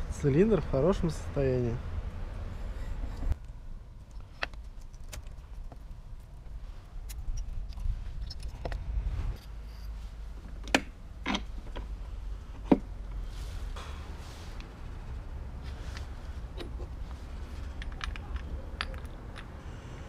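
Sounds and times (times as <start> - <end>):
low steady rumble: 0.0 - 20.0
metal parts clinking: 17.6 - 19.6.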